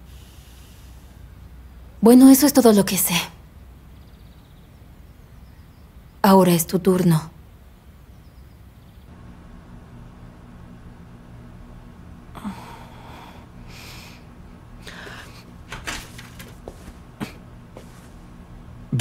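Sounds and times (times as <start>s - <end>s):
low steady hum: 0.0s - 19.0s
soft rustling: 14.9s - 18.4s.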